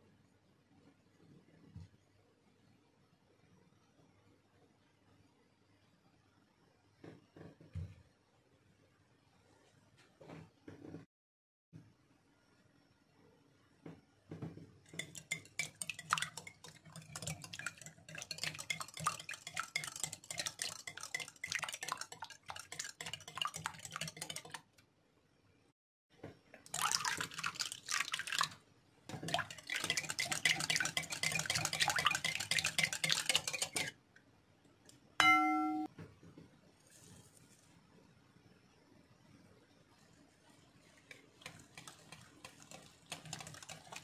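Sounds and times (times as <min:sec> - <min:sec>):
whisk beating in a glass bowl: 0:14.9 - 0:24.7, 0:26.7 - 0:34.0, 0:40.9 - 0:44.0
glass clinking: 0:35.2 - 0:35.9.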